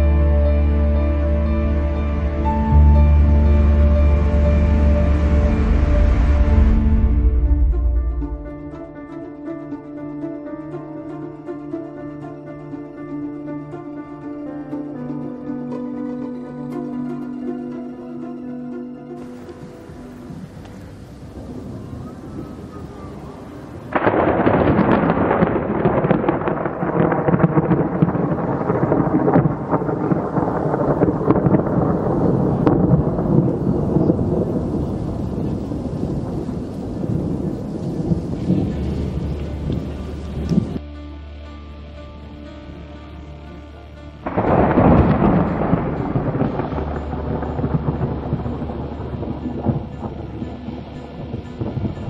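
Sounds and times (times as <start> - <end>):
crackling thunder rumble: 0.0 - 9.2, 19.2 - 40.8, 44.2 - 52.0.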